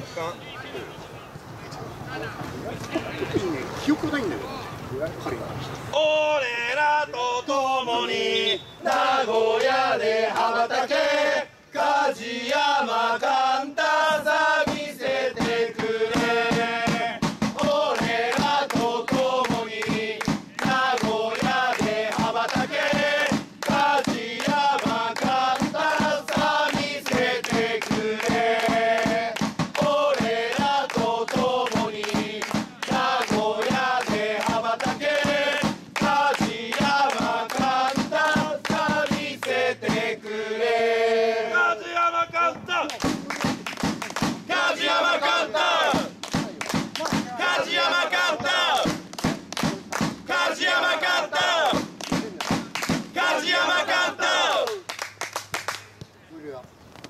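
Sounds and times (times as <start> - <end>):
football supporters chanting: 5.9 - 54.9
fast steady beat: 14.6 - 40.1.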